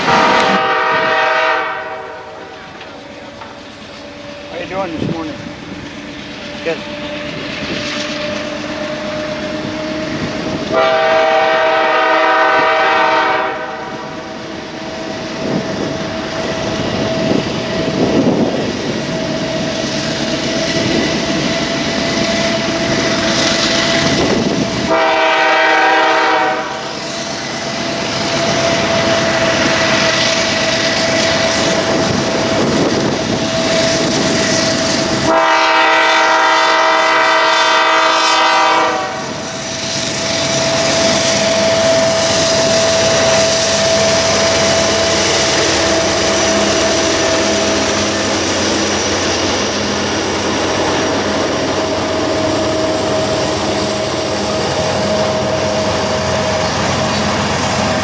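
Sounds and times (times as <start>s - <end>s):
locomotive horn blasts: 0.0s - 2.8s, 10.7s - 14.4s, 24.9s - 26.9s, 33.6s - 39.4s, 40.8s - 48.2s
train wheels on rails: 0.0s - 58.0s
steady high tone: 40.6s - 58.0s.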